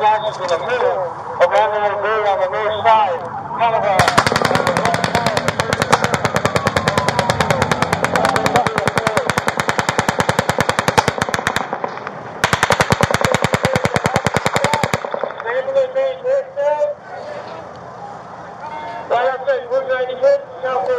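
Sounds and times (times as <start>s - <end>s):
automatic rifle gunfire: 4.0s - 16.0s.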